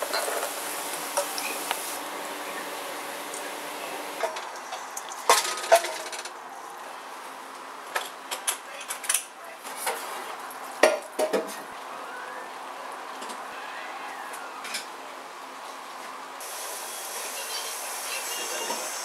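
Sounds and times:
utensils clinking on cookware: 0.0s - 0.5s.

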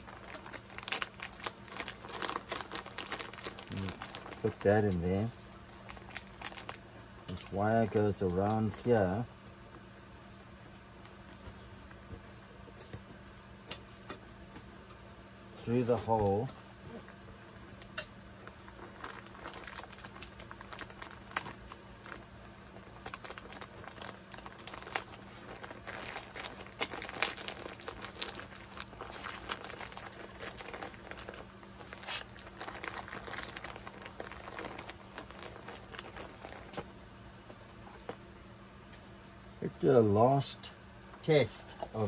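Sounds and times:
plastic bag crinkling: 0.0s - 9.0s, 18.4s - 36.9s.

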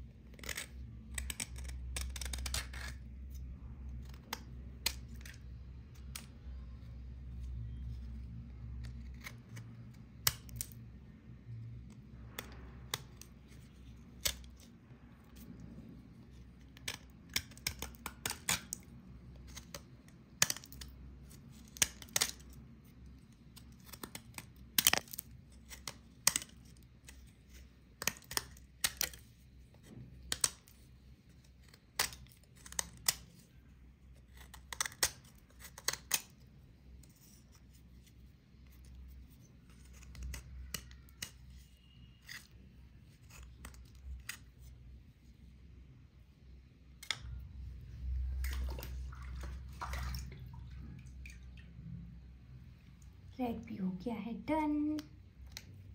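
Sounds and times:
clay flakes cracking and snapping: 0.0s - 45.6s, 46.6s - 52.0s, 55.0s - 55.9s
knife scraping dried clay: 0.2s - 5.4s, 7.5s - 10.8s, 37.0s - 44.8s.

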